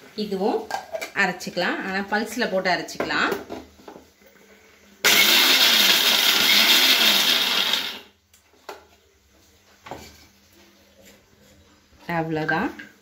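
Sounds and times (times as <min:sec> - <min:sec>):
mixer grinder grinding nuts: 0:05.0 - 0:08.1.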